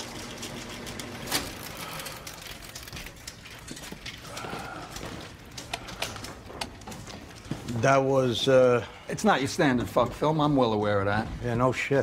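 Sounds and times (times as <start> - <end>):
film projector running: 0.0 - 2.9.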